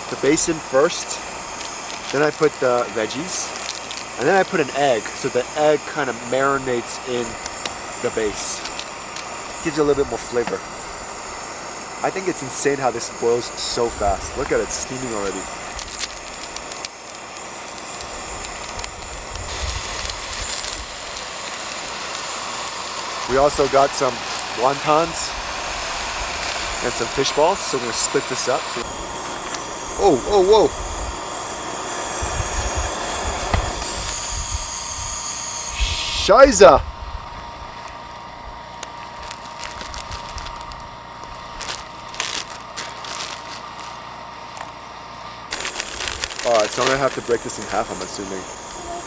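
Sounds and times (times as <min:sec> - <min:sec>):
gas burner hissing: 0:00.0 - 0:49.0
plastic packaging crinkling: 0:00.2 - 0:05.4, 0:06.7 - 0:10.6, 0:13.2 - 0:29.7, 0:38.6 - 0:44.8, 0:45.5 - 0:48.7.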